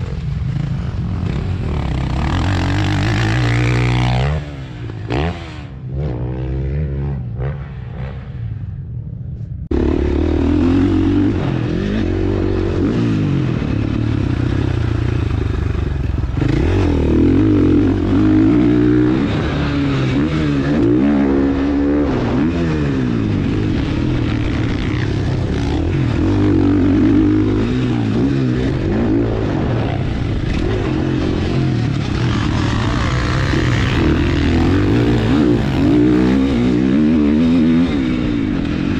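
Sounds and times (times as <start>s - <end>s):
distant dirt bike revving: 0.0s - 38.9s
motocross engine revving on-board: 9.7s - 38.8s.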